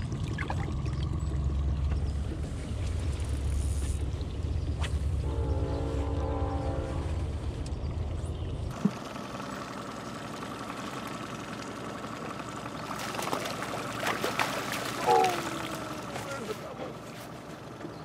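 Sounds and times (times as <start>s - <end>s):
outboard motor idling: 0.0s - 6.8s, 7.8s - 18.0s
fish splashing at surface: 13.0s - 16.1s.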